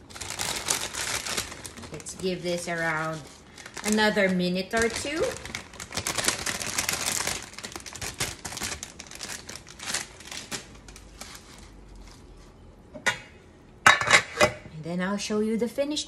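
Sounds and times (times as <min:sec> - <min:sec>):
plastic bag crinkling: 0:00.0 - 0:12.6.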